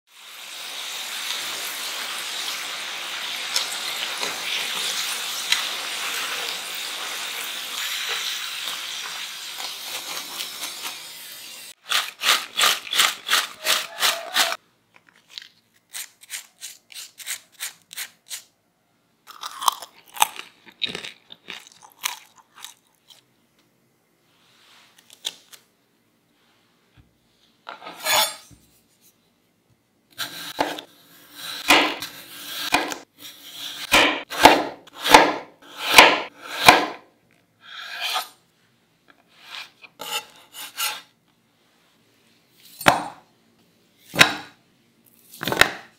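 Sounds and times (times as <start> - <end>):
potatoes sizzling in hot oil: 0.1 - 13.8
crunchy bites into fries: 19.3 - 23.3.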